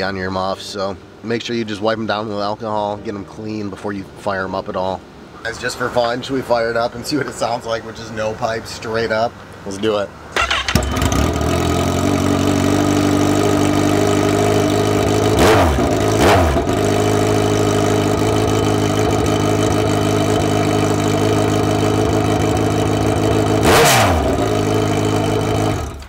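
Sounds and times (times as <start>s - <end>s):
motorcycle engine idling loudly: 10.4s - 26.0s
motorcycle engine revving: 10.4s - 26.0s.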